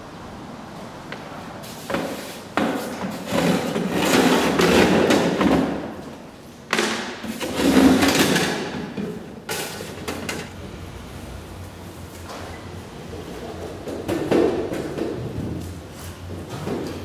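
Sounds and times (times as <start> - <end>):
metal ducting scraping on floor: 7.3 - 8.5.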